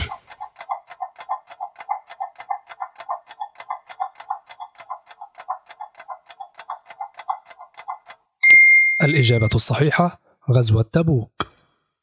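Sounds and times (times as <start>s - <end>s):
clock ticking rapidly: 0.0s - 8.4s.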